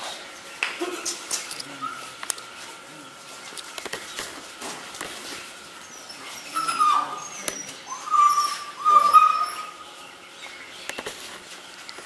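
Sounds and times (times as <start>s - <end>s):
puppy whining: 5.8s - 10.0s.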